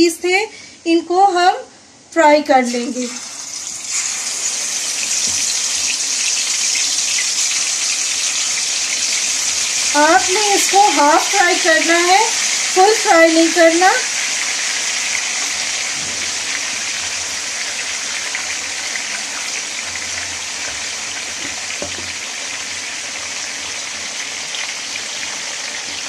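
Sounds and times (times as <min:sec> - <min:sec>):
chicken sizzling in hot oil: 0:02.8 - 0:26.0.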